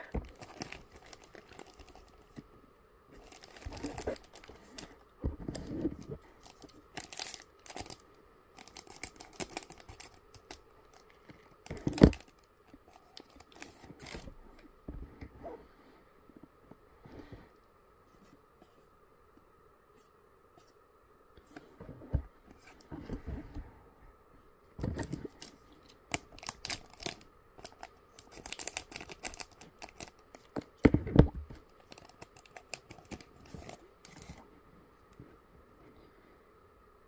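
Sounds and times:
foil pack crinkling: 0:00.0 - 0:02.4, 0:03.2 - 0:14.3, 0:24.8 - 0:30.8, 0:31.5 - 0:34.4.

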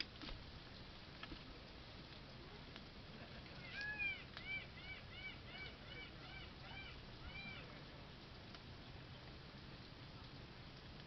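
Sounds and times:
bird calling: 0:03.5 - 0:07.8.

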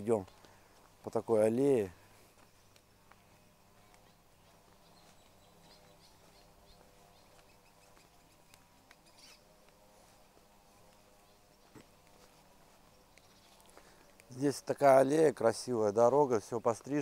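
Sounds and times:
low steady hum: 0:01.9 - 0:14.9.

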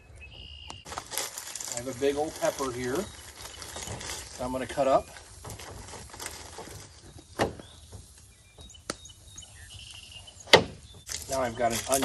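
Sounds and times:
faint bird chirps: 0:00.0 - 0:00.9, 0:07.0 - 0:11.7.

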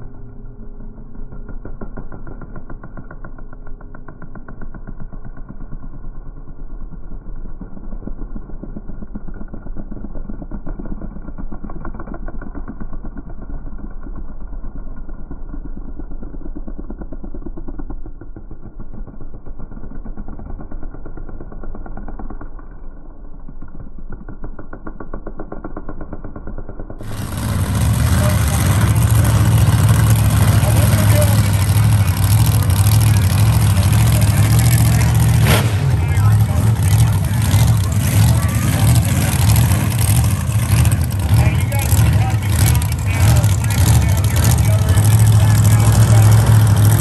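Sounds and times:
quad engines racing: 0:27.0 - 0:47.0.

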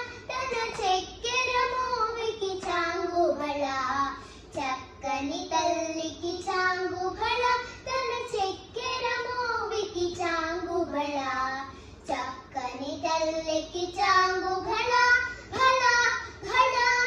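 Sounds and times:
girls singing unaccompanied: 0:00.0 - 0:04.1, 0:12.8 - 0:17.0.

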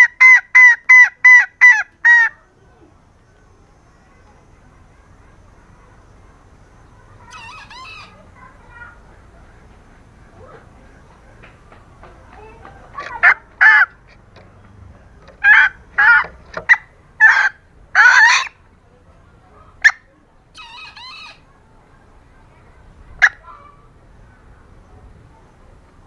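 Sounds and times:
junglefowl hen calling: 0:00.0 - 0:02.5, 0:04.6 - 0:11.5, 0:12.3 - 0:18.7, 0:19.5 - 0:21.6, 0:23.1 - 0:24.8.

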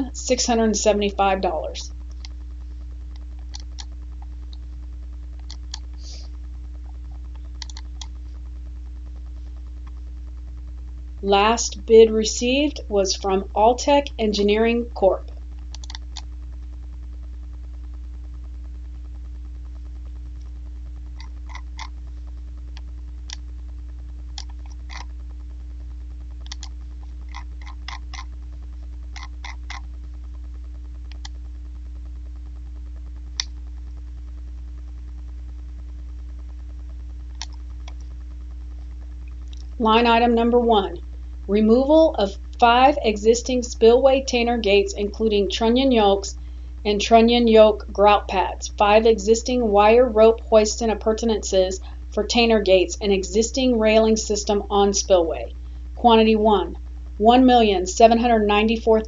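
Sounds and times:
steady low hum: 0:00.0 - 0:59.0
computer mouse clicks: 0:03.1 - 0:03.9, 0:05.4 - 0:05.9, 0:07.5 - 0:08.1, 0:15.6 - 0:16.3, 0:24.4 - 0:25.1, 0:26.4 - 0:26.7, 0:27.3 - 0:28.3, 0:29.2 - 0:29.8, 0:31.1 - 0:31.4, 0:37.3 - 0:38.0
computer keyboard clicks: 0:07.6 - 0:08.1, 0:15.8 - 0:16.2, 0:26.4 - 0:26.7.

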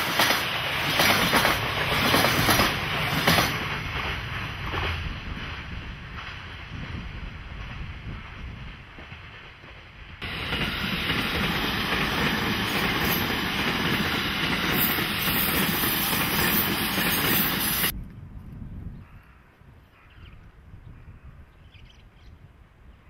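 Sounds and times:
train wheels rushing on rail: 0:00.0 - 0:18.0
wind on microphone: 0:04.3 - 0:09.2, 0:17.9 - 0:23.0.

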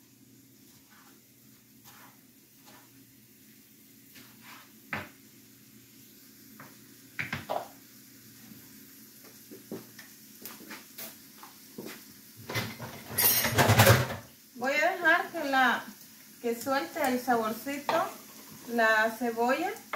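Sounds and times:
dishes and utensils clinking: 0:12.5 - 0:14.2
dishes clattering: 0:12.5 - 0:14.2.

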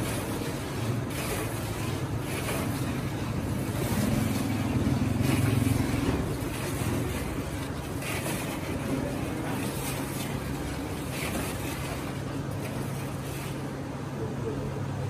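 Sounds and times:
ladle stirring a metal pot: 0:00.0 - 0:13.8
soft sloshing: 0:00.0 - 0:14.8
steady low hum: 0:00.0 - 0:15.0.

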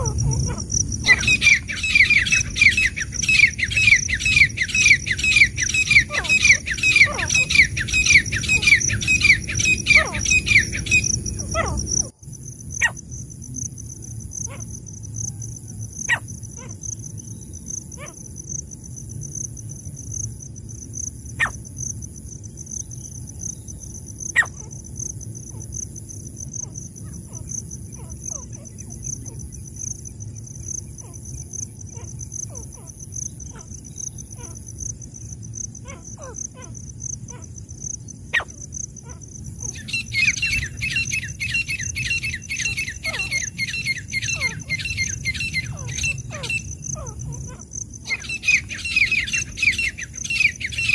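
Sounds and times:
bird chirps: 0:00.0 - 0:12.1, 0:39.6 - 0:50.9
loud rhythmic bird calls: 0:00.0 - 0:12.1, 0:26.4 - 0:50.9
pulsing high insect drone: 0:00.0 - 0:50.9.

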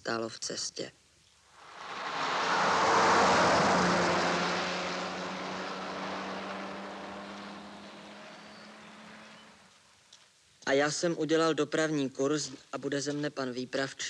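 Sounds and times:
truck engine passing: 0:01.6 - 0:09.7.

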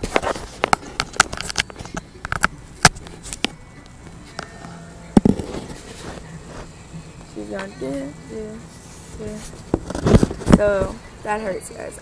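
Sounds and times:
tablet handling knocks and rubbing: 0:00.0 - 0:03.5, 0:09.0 - 0:10.6.

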